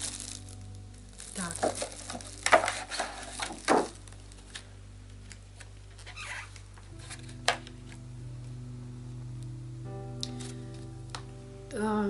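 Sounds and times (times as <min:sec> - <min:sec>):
plastic film crinkling: 0:00.0 - 0:08.1, 0:10.2 - 0:11.4.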